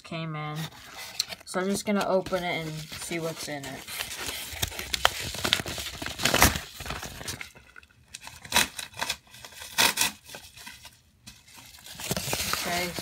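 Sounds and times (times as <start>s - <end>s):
plastic bag crinkling: 2.3s - 9.8s, 11.6s - 13.0s
plastic bag ripping: 3.8s - 7.6s, 8.2s - 10.4s, 12.0s - 13.0s.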